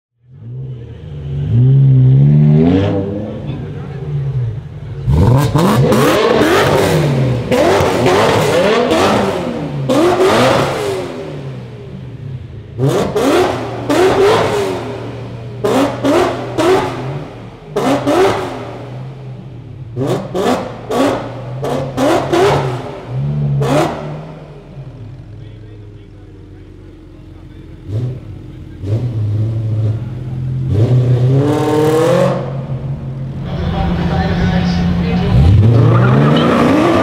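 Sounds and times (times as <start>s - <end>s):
car engine revving in tunnel: 0.2s - 37.0s.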